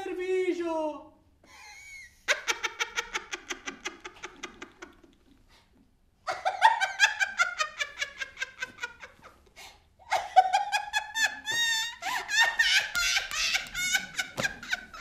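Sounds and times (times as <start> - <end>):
woman laughing loudly: 1.5 - 5.0, 6.3 - 9.4, 10.0 - 15.0.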